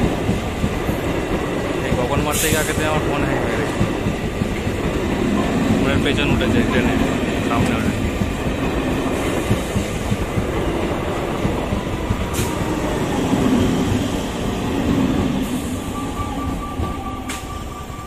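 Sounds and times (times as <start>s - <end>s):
train passing on track: 0.0s - 18.0s
steady high tone: 12.7s - 18.0s.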